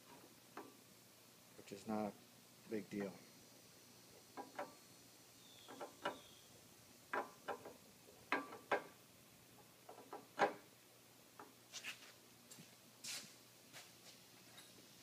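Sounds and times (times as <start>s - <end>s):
sharp metal clicks and knocks: 4.4s - 4.8s, 5.7s - 6.3s, 7.1s - 9.0s, 9.8s - 10.7s.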